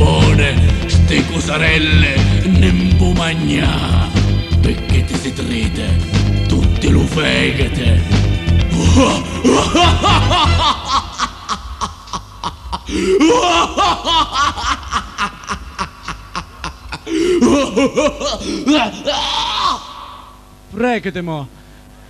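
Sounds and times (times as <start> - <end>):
music with bass line: 0.0 - 10.8
man chuckling through pa: 9.0 - 19.1.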